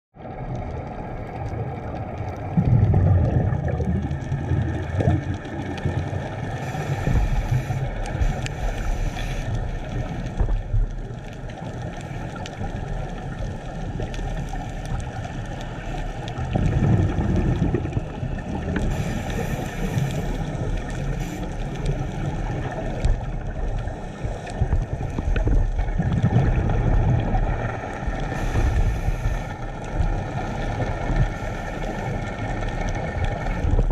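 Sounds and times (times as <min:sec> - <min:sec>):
exhaled bubbles rumbling: 0:00.2 - 0:33.9
low underwater rumble: 0:00.2 - 0:33.9
regulator inhale hiss: 0:06.5 - 0:10.4, 0:18.8 - 0:22.5, 0:28.2 - 0:29.6.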